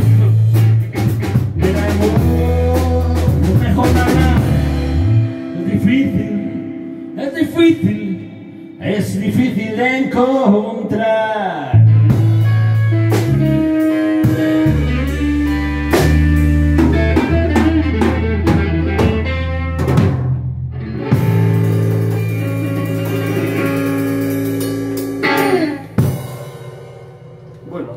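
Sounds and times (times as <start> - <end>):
drum kit: 0.0 - 6.4, 11.8 - 27.9
electric bass: 0.0 - 10.4, 11.6 - 27.9
electric guitar: 0.0 - 10.4, 11.6 - 27.8.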